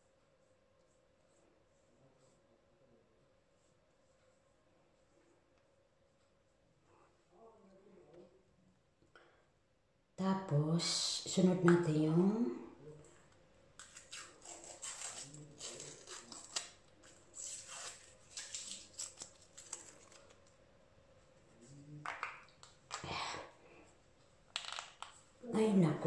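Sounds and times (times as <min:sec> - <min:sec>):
plastic packaging crinkling: 0:13.8 - 0:20.5.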